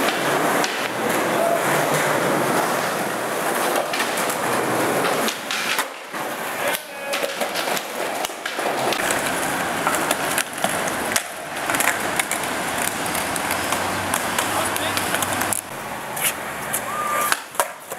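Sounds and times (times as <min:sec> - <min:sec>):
skateboard clacking on ground: 0:00.0 - 0:17.9
skateboard wheels rolling on concrete: 0:00.0 - 0:17.9.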